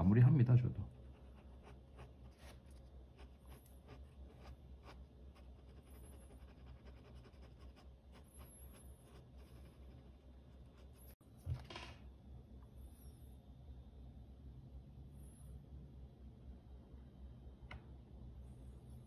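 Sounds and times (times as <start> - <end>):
pen scratching on paper: 1.0 - 11.2.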